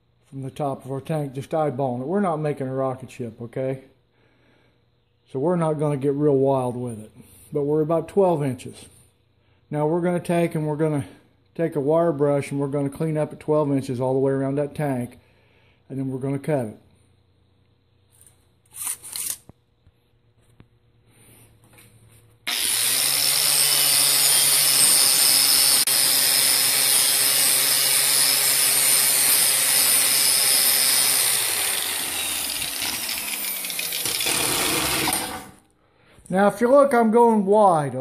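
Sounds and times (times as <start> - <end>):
angle grinder wire wheel scratching: 22.6 - 35.6.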